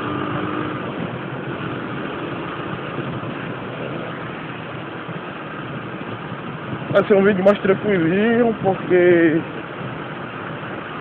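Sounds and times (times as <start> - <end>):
motorcycle engine running: 0.0 - 11.0
road and wind noise: 0.0 - 11.0.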